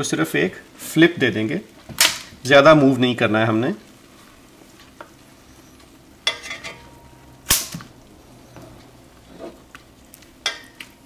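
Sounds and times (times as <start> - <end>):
faint sizzle: 0.0 - 11.0
tongs clacking and scraping pot: 5.8 - 7.2, 8.5 - 11.0.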